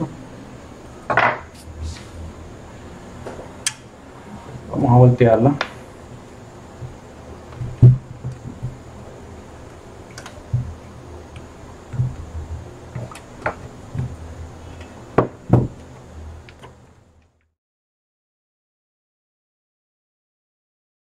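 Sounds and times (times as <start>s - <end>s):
board knocking on bench: 15.2s - 15.8s.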